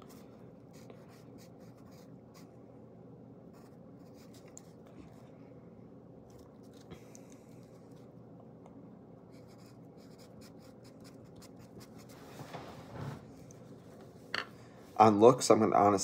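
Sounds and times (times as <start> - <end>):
pen scratching on paper: 0.0 - 2.4, 9.3 - 12.2
low room hum: 0.0 - 16.0.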